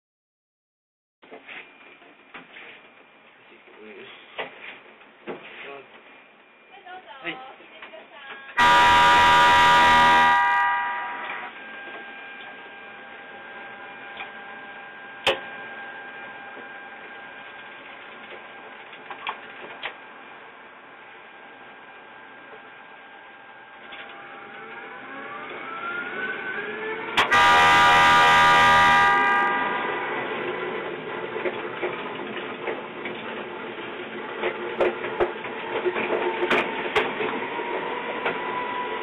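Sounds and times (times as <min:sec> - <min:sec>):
loud horn-like tone: 0:08.6 - 0:11.9, 0:27.2 - 0:30.2
rising whine: 0:23.6 - 0:28.2
miniature train running on track: 0:27.1 - 0:39.0.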